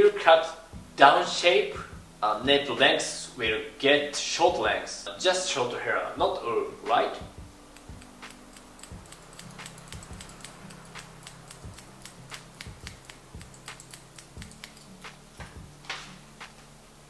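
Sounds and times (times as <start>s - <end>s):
scissors snipping hair: 7.6s - 16.1s.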